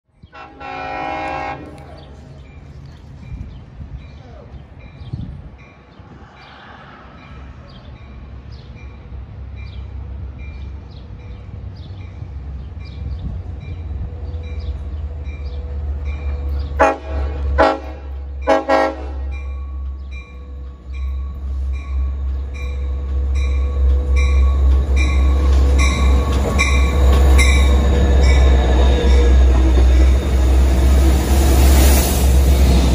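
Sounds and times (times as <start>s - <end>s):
train horn blasts: 0.2s - 2.2s, 16.8s - 19.5s
locomotive engine rumble: 0.6s - 32.9s.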